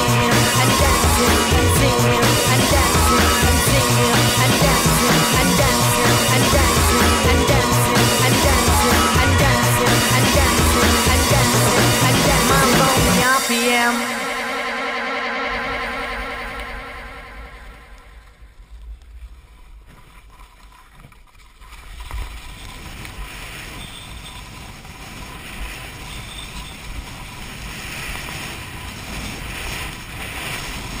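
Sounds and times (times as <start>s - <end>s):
background music: 0.0s - 18.4s.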